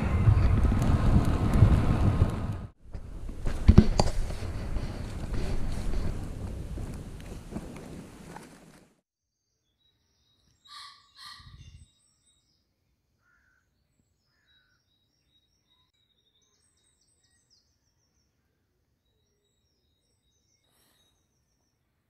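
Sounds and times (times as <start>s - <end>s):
wind buffeting microphone: 0.0s - 8.5s, 11.3s - 11.9s
high chirping birdsong: 9.3s - 21.9s
crow cawing: 10.7s - 11.4s, 13.2s - 13.7s.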